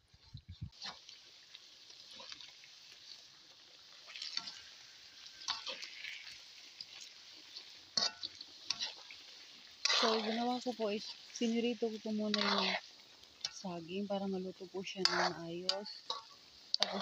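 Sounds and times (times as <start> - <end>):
frying sizzle in wok: 0.6 - 17.0
metal spatula scraping pan: 4.1 - 6.4, 7.0 - 9.2, 9.8 - 13.6, 14.9 - 17.0.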